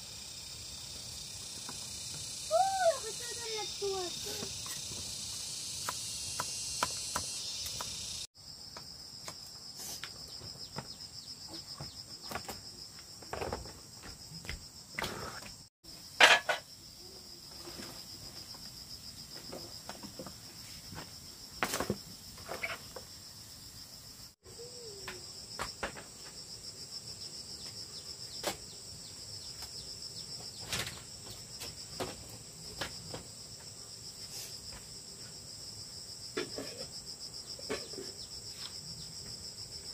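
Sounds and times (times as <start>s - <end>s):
insects trilling: 0.0s - 39.9s.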